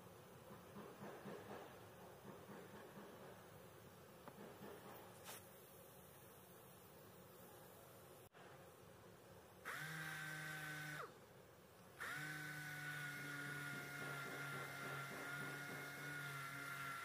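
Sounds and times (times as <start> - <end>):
orbital sander whining: 12.0 - 17.0.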